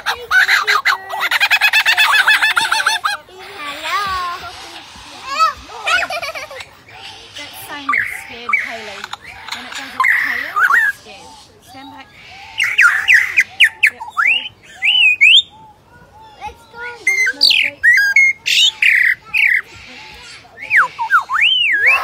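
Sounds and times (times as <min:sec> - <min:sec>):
lyrebird singing whistles and clicks: 0:17.2 - 0:22.0.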